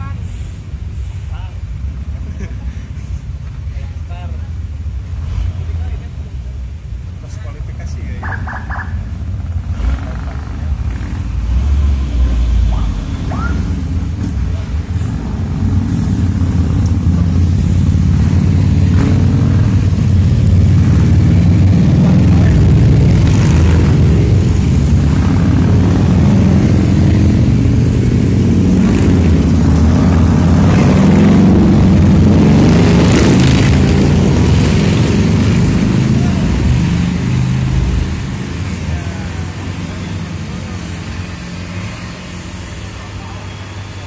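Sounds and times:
motorcycle engines passing: 0.0 - 44.0.

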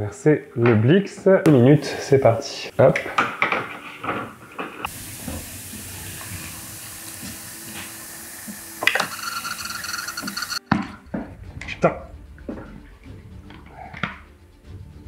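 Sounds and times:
pressurised gas hissing from tank: 4.8 - 10.6.

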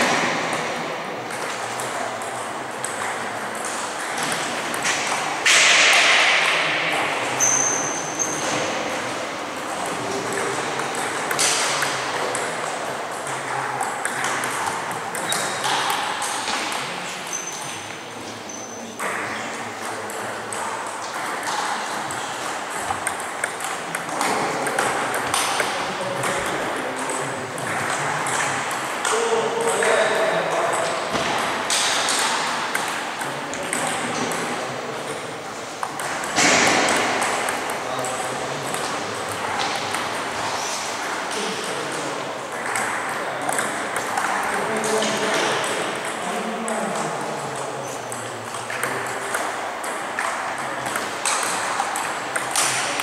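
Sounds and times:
ball clicking off paddles: 0.0 - 18.0, 18.6 - 53.0
ball bouncing on table: 1.3 - 35.2, 35.8 - 47.2, 48.1 - 53.0.

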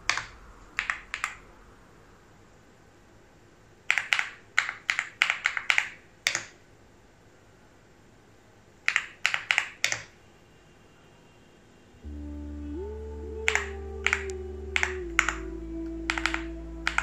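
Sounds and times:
computer keyboard typing: 0.1 - 1.4, 3.9 - 6.6, 8.9 - 10.1, 13.5 - 15.4, 16.1 - 17.0.

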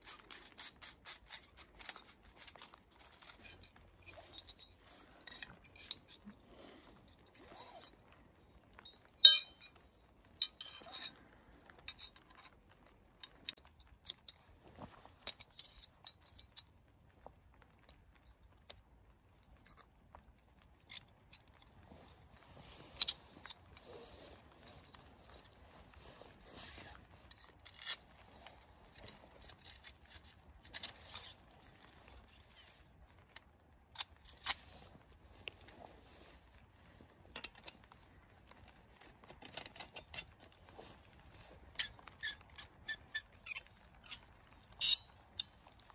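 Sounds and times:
metal tubes scraping: 0.0 - 8.0, 9.2 - 11.2, 22.4 - 31.4, 39.4 - 45.8
metal tubes clicking together: 9.2 - 9.8, 41.8 - 45.6.

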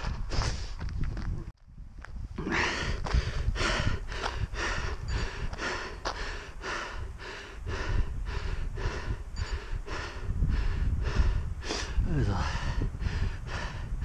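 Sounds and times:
person panting hard: 0.3 - 0.8, 2.4 - 14.0.

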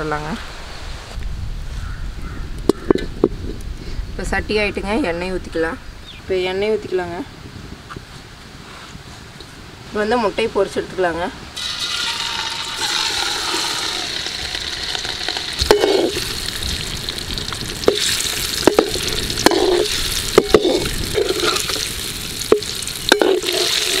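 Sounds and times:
eggs sizzling in hot oil: 11.6 - 24.0
metal spoon scraping pan: 12.8 - 16.3, 17.8 - 24.0.

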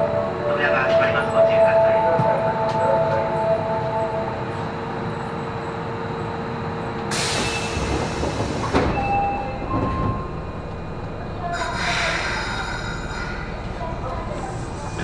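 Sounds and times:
steady train hum: 0.0 - 15.0
train doors shutting thud: 7.1 - 10.3.

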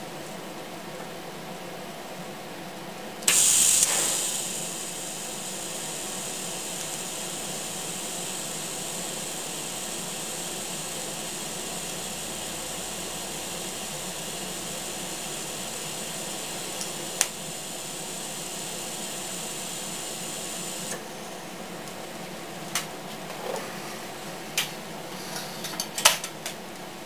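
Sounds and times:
sharp click: 3.2 - 5.0
welding arc hissing: 3.2 - 21.0.

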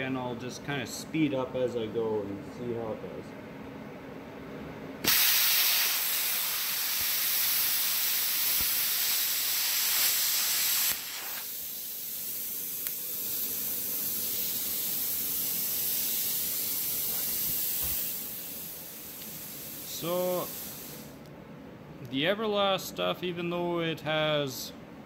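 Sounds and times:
plasma cutter hissing: 5.0 - 21.2.

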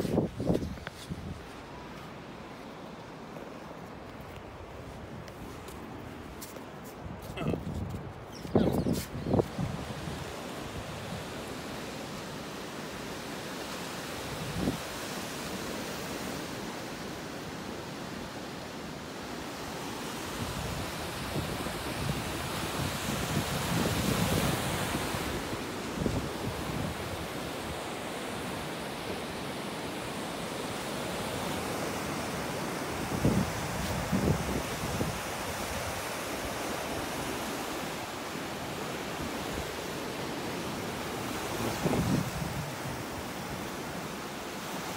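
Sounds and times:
wind buffeting microphone: 7.1 - 10.4, 41.5 - 43.2
surf washing over rocks: 9.1 - 44.9.

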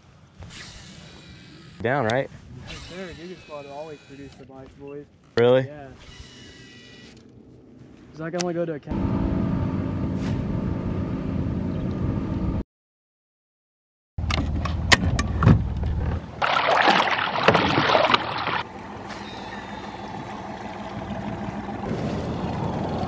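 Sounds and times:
water wash: 16.4 - 23.0
boat motor running: 17.5 - 23.0.

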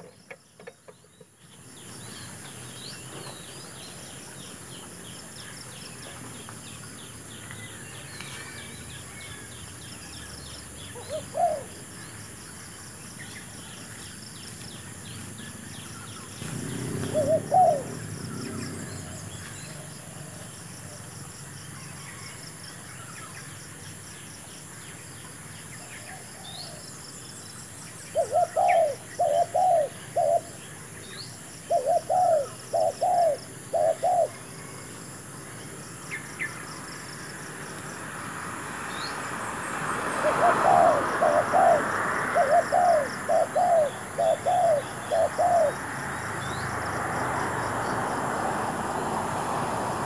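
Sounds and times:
dove cooing: 10.9 - 11.8, 16.4 - 21.0, 28.1 - 30.6, 31.6 - 34.5, 40.1 - 45.9.

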